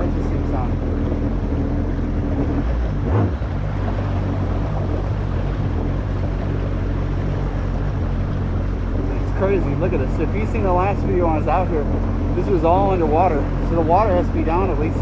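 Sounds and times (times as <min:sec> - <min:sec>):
jet ski engine running: 0:00.0 - 0:15.0.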